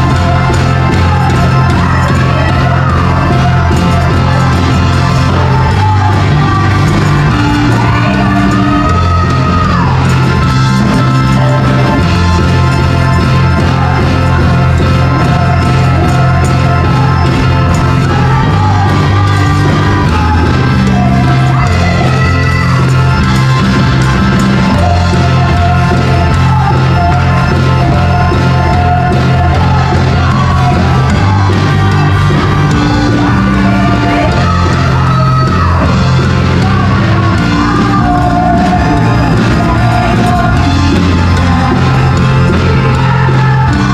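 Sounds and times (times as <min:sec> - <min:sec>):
band with bass line: 0:00.0 - 0:43.9
women's vocal group singing: 0:11.2 - 0:43.9.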